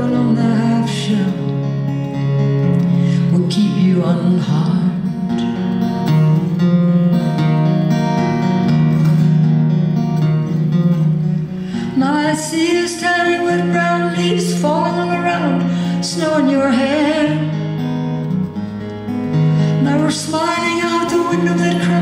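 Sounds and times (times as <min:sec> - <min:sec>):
woman singing: 0:00.0 - 0:01.7, 0:03.2 - 0:05.4, 0:11.8 - 0:17.7, 0:19.7 - 0:22.0
acoustic guitar picking: 0:00.0 - 0:22.0.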